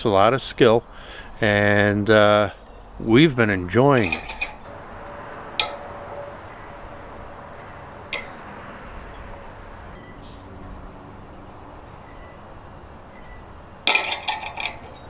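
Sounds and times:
metal ring clinking on hook: 4.0 - 4.7, 5.6 - 5.9, 8.1 - 8.4, 10.0 - 10.3, 13.2 - 15.0.

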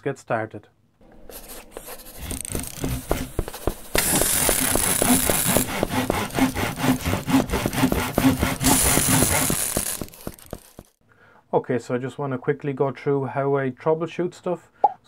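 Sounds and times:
sawing strokes: 1.1 - 10.9.

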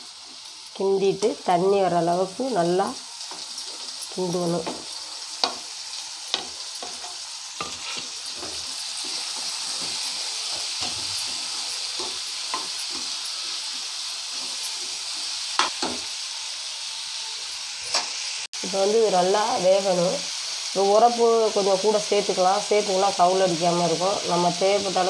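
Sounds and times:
meat sizzling in oil: 0.0 - 25.0
spatula scraping a pan: 3.2 - 16.1.

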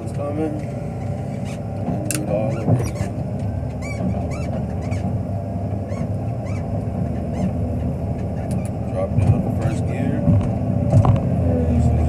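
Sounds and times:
diesel engine running: 0.0 - 12.0
short high squeaks: 2.4 - 5.1, 5.8 - 7.6.

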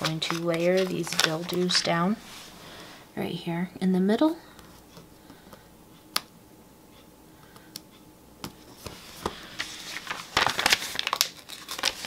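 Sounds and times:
paper rustling and crinkling: 0.0 - 2.5, 8.6 - 12.0.

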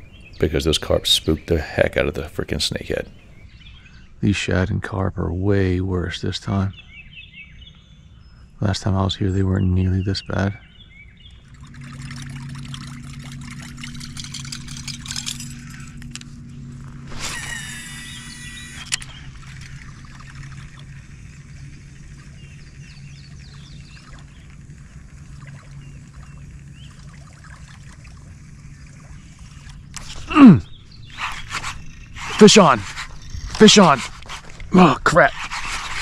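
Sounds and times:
low hum: 0.0 - 36.0
small clicks crackling: 11.2 - 17.0
water trickling and lapping: 11.2 - 36.0
buzzing rattle ending in click: 11.3 - 26.9.

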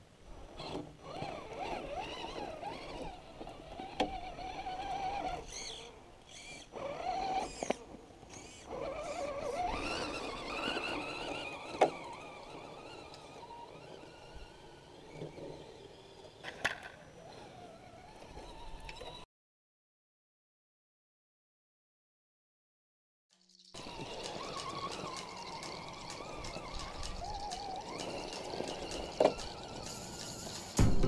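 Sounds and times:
electric motor whining: 0.6 - 16.4, 23.8 - 30.9.

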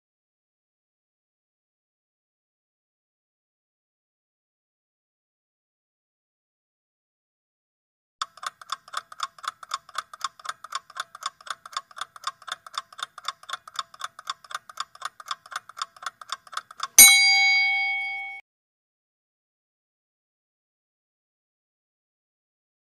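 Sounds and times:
clock ticking: 8.2 - 18.4
bell ding: 17.0 - 18.4.

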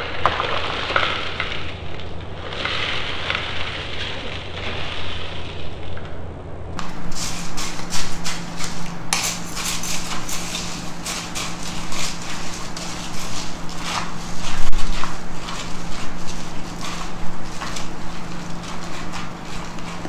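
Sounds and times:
granola poured into cups: 6.8 - 20.0
spoons stirring in plastic cups: 6.8 - 20.0.

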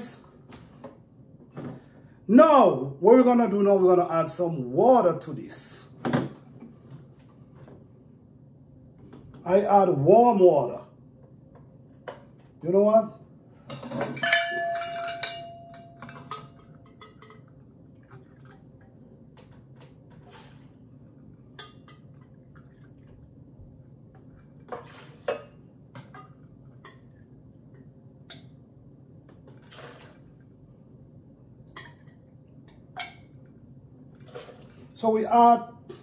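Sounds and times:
metal measuring cups clinking: 13.7 - 17.5.

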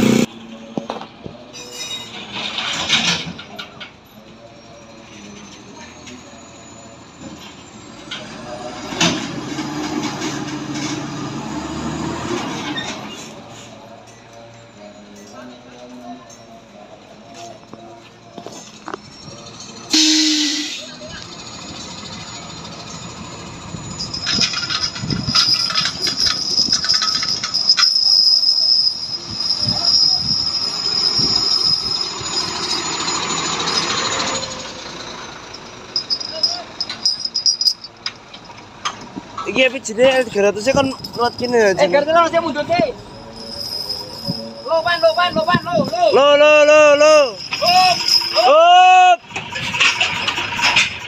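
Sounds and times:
truck squealing high-pitched: 0.0 - 51.0
machinery rattles and knocks: 21.2 - 28.0, 49.2 - 51.0
heavy diesel engine running: 32.0 - 43.5, 46.8 - 51.0.

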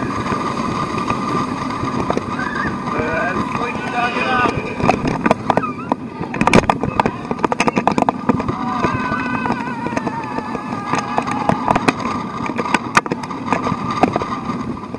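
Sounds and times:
roller coaster wheels clattering: 0.0 - 14.9
rushing noise: 0.0 - 14.9
wind on microphone: 0.0 - 14.9.

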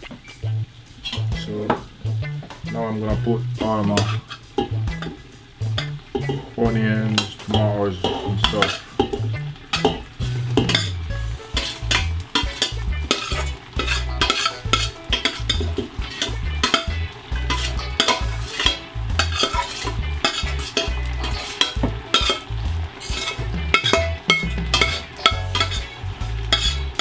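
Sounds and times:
food sizzling in oil: 0.0 - 27.0
metal spoon scraping pots: 1.0 - 1.8, 3.5 - 27.0.

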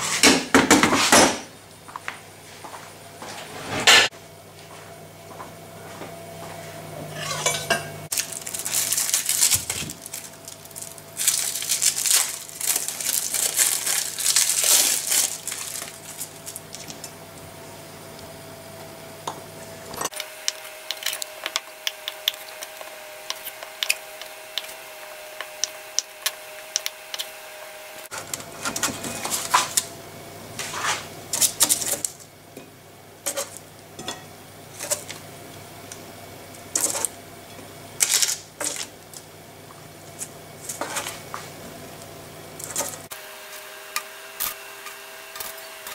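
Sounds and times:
utensils clattering and scraping: 7.0 - 17.2, 28.1 - 29.9, 30.6 - 32.2, 33.3 - 35.2, 36.7 - 39.2, 40.1 - 41.3, 42.6 - 43.1
utensil scraping metal tray: 7.1 - 7.9.

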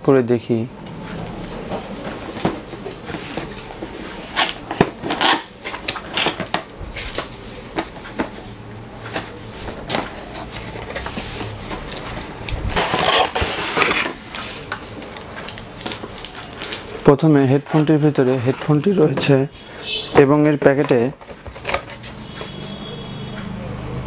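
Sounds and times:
cardboard box being opened: 9.1 - 14.7
packaging sliding out of box: 9.1 - 16.8.

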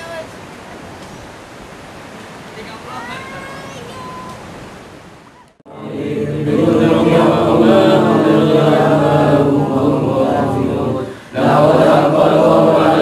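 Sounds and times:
faint outdoor hiss: 0.0 - 13.0
group chanting a prayer: 5.6 - 13.0.

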